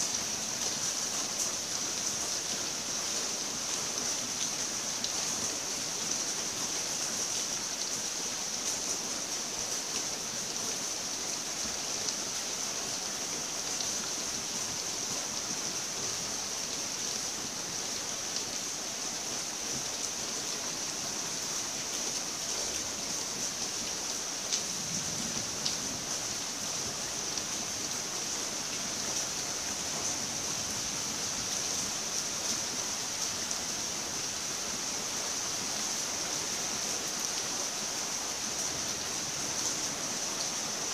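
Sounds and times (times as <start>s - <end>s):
steady rain hiss: 0.0s - 40.9s.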